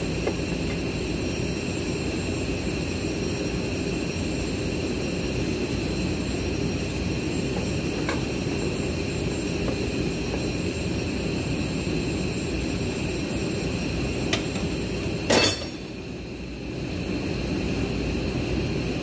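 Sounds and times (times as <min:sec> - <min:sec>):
metallic clink of tools: 0:15.3 - 0:15.9.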